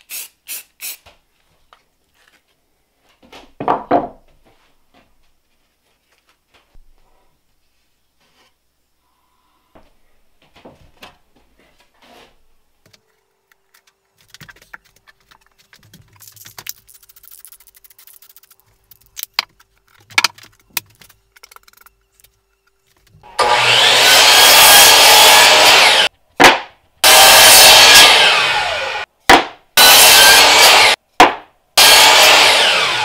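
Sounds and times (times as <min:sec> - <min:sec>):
miter saw cutting wood: 0:23.2 - 0:29.1, 0:29.8 - 0:31.0, 0:31.8 - 0:33.0.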